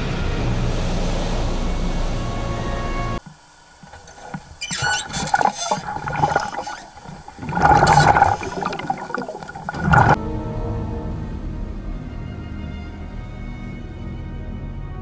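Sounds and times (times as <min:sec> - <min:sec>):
background music: 0:00.0 - 0:03.2, 0:10.2 - 0:15.0
underwater churning and bubbling: 0:02.9 - 0:10.2.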